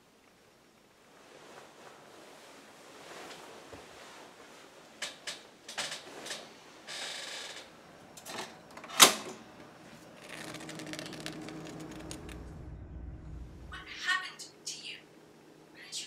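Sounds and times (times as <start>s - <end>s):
faint low hum: 7.4s - 16.0s.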